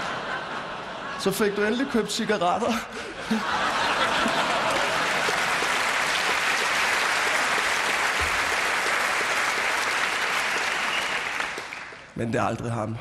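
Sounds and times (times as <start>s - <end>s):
audience laughter: 0.0s - 5.8s
audience applauding: 3.6s - 12.2s.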